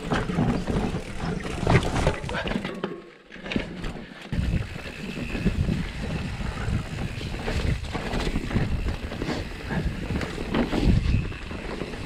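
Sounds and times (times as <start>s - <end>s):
wind buffeting microphone: 4.3s - 12.0s.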